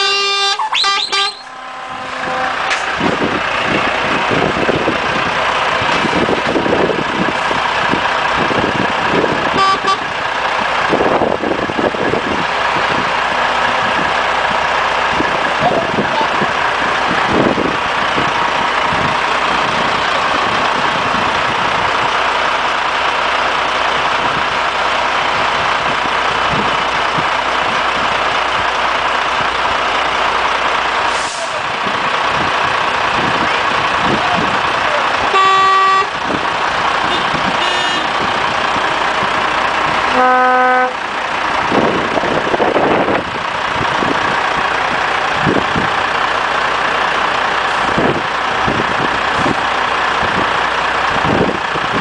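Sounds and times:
truck horn blasts: 0:00.0 - 0:03.4, 0:09.4 - 0:10.2, 0:35.3 - 0:36.2, 0:37.0 - 0:38.3, 0:40.0 - 0:41.0
diesel truck engines idling: 0:00.0 - 0:52.0.

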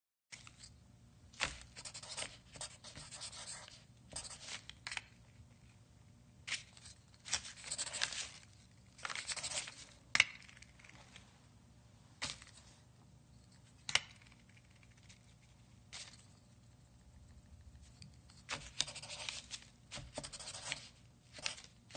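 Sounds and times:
pencil writing on paper: 0:01.8 - 0:04.4, 0:20.0 - 0:20.8.

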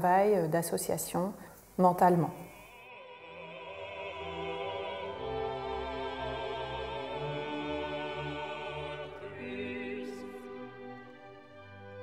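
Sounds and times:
operatic orchestral music: 0:03.0 - 0:12.0.

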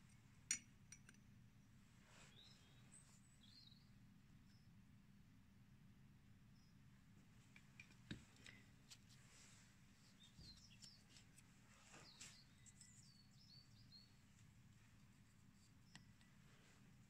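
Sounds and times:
low room hum: 0:00.0 - 0:17.0
faint high chirps: 0:11.9 - 0:14.2.

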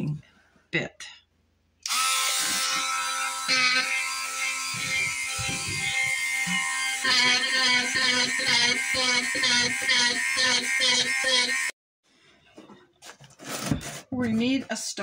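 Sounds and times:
rotary tool carving wood: 0:01.9 - 0:11.7.

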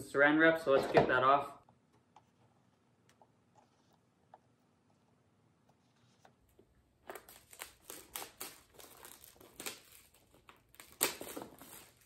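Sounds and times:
plastic wrap crinkling: 0:07.0 - 0:12.0.

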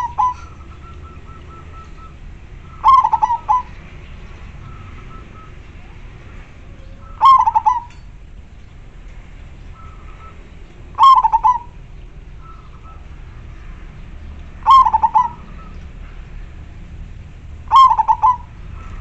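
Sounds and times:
dove cooing: 0:00.0 - 0:03.8, 0:04.6 - 0:08.0, 0:09.7 - 0:11.8, 0:14.6 - 0:15.8, 0:17.6 - 0:19.0.

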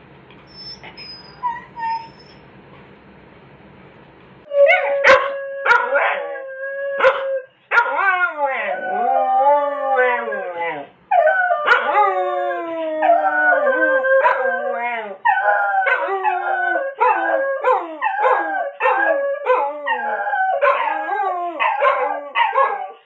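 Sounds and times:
dogs howling: 0:04.5 - 0:23.0.

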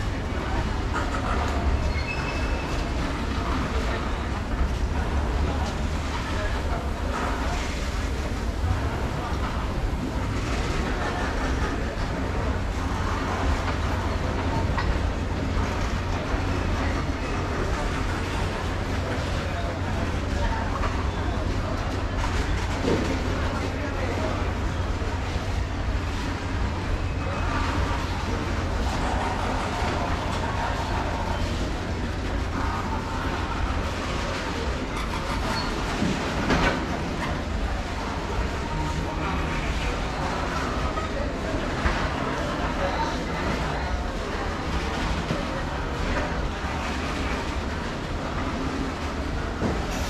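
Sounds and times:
train wheels rumbling on track: 0:00.0 - 0:50.0
wheel squeal: 0:01.6 - 0:02.9, 0:34.9 - 0:35.8.

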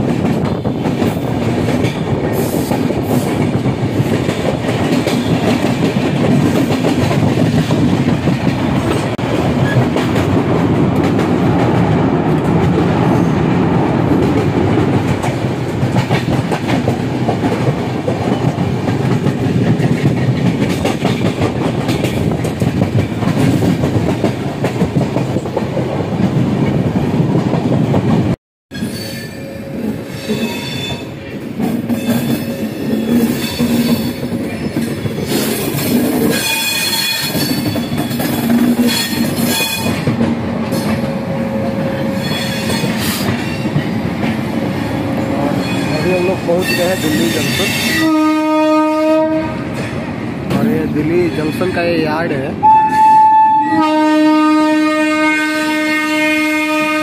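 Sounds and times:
wheels clacking over rail joints: 0:00.0 - 0:26.8
train wheels rumbling on rails: 0:00.0 - 0:57.0.

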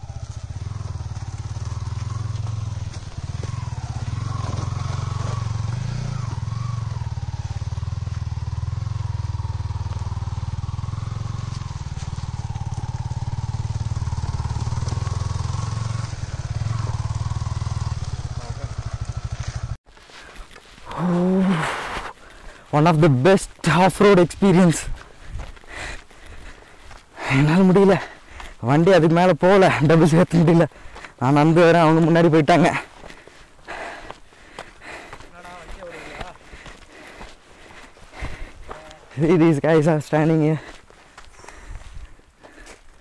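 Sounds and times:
motorcycle engine at low revs: 0:00.0 - 0:19.8.

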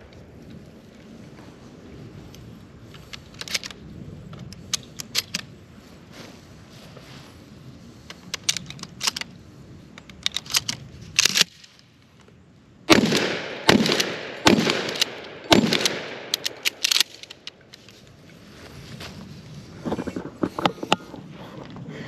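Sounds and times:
shotgun blasts: 0:12.9 - 0:16.6
sharp clicks: 0:13.1 - 0:17.9.

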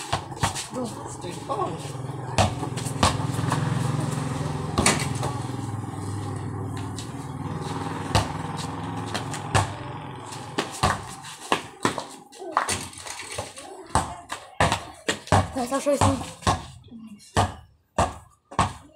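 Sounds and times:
basketball bouncing on concrete: 0:00.0 - 0:18.9
vehicle engine running: 0:00.2 - 0:12.1.

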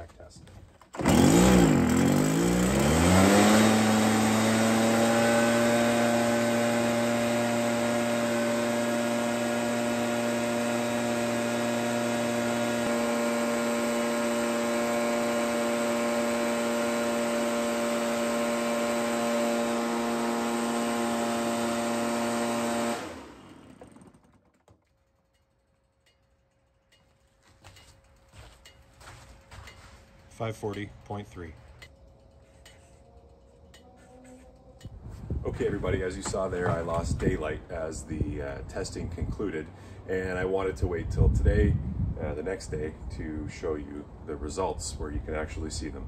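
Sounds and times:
leaf blower engine revving: 0:00.9 - 0:24.6.

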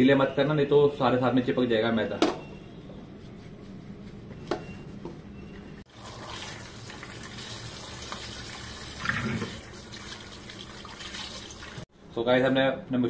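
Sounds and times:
tap water running into colander: 0:05.9 - 0:11.9.

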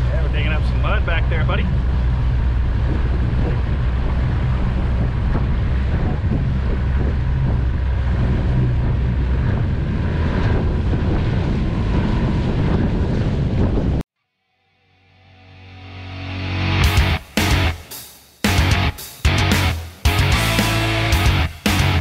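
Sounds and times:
water rushing past hull: 0:00.0 - 0:13.8
outboard motor drone: 0:00.0 - 0:14.0
wind buffeting microphone: 0:00.0 - 0:14.0.

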